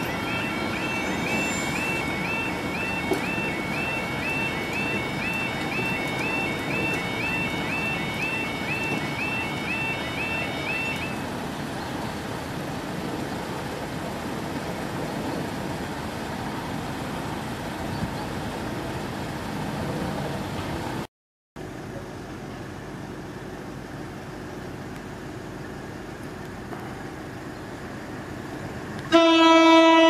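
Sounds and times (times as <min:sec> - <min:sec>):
level crossing alarm warbling: 0:00.0 - 0:11.2
road traffic rush: 0:00.0 - 0:30.0.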